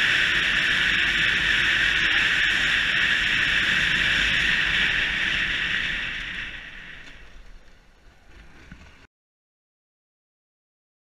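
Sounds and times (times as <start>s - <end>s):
motorcycle running: 0.0s - 7.4s
wind rush: 0.0s - 7.5s.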